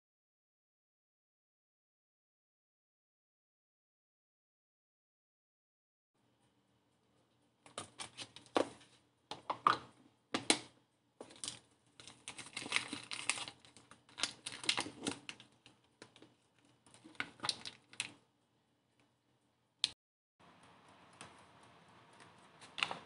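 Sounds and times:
plastic crinkling and clicking: 0:10.4 - 0:18.2.

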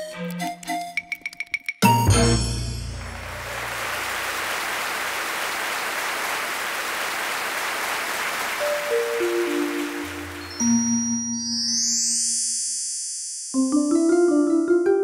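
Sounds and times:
applause: 0:02.9 - 0:11.0.

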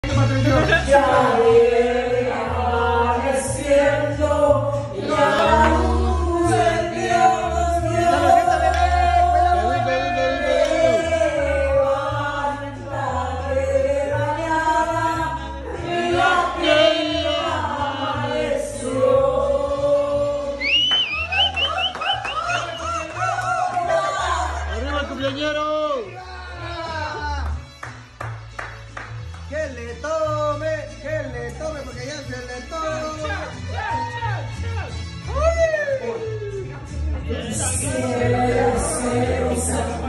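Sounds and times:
karaoke backing track with bass: 0:00.0 - 0:40.0
voices singing along: 0:00.4 - 0:25.1, 0:36.6 - 0:40.0
woman singing into microphone: 0:01.3 - 0:18.6.

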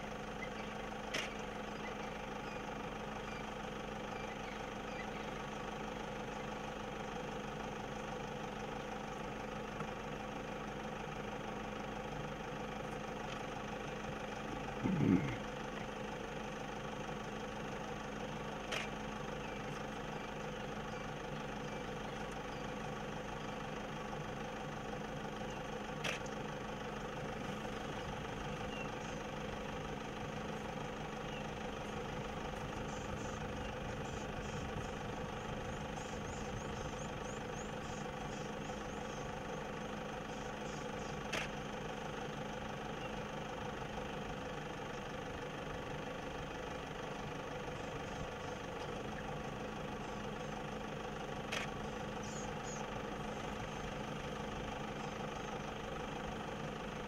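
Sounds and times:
vehicle engine idling: 0:00.0 - 0:57.0
faint high chirping: 0:51.8 - 0:52.9.

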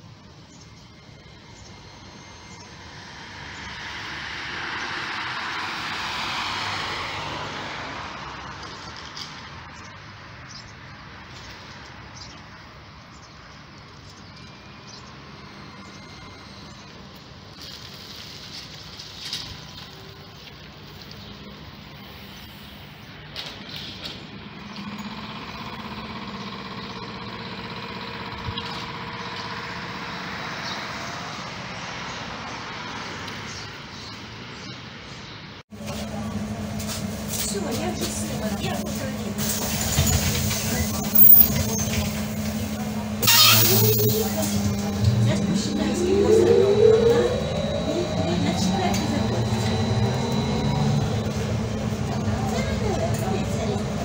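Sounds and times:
street noise: 0:00.0 - 0:54.0
trolleybus electric drive humming: 0:00.0 - 0:54.0
car passing by: 0:02.4 - 0:09.5
whining tones: 0:35.8 - 0:54.0.

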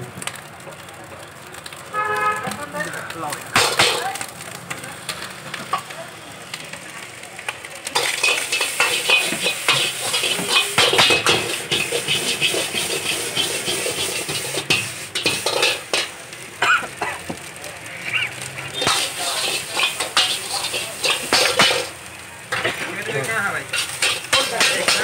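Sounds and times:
rice sizzling: 0:00.0 - 0:25.0
metal ladle scraping a wok: 0:08.0 - 0:16.2, 0:18.0 - 0:25.0.

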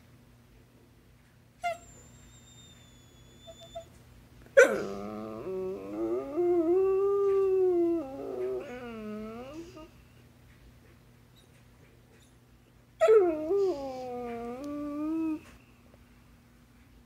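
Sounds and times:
dog yelping: 0:04.6 - 0:05.3
dog howling: 0:04.6 - 0:09.9, 0:13.0 - 0:15.5.

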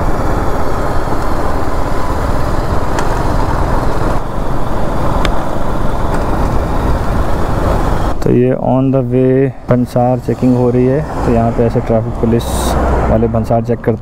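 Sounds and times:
motorcycle engine running: 0:00.0 - 0:08.0
road and wind noise: 0:00.0 - 0:14.0.

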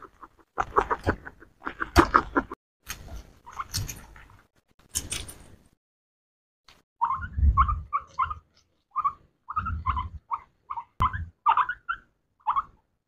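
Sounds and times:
guinea pigs squeaking: 0:00.0 - 0:02.4, 0:03.4 - 0:04.1, 0:07.0 - 0:12.8.

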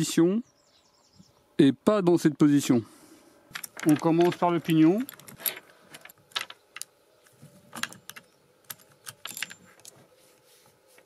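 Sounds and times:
chain links clicking and rattling: 0:03.5 - 0:06.9, 0:07.7 - 0:10.0.

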